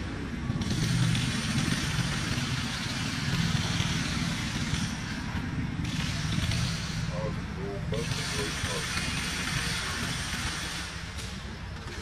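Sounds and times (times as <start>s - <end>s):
low engine rumble: 0.0s - 12.0s
hiss: 0.6s - 7.3s.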